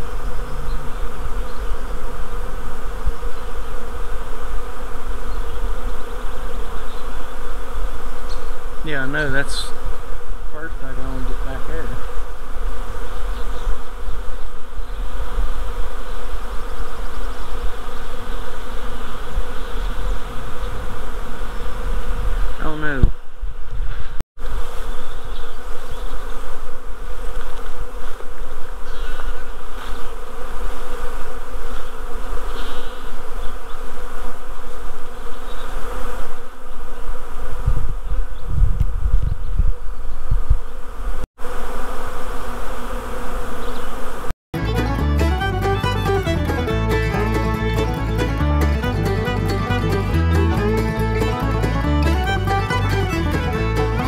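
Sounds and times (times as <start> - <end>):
bees buzzing: 0.0 - 54.0
loud buzz sliding down: 40.4 - 54.0.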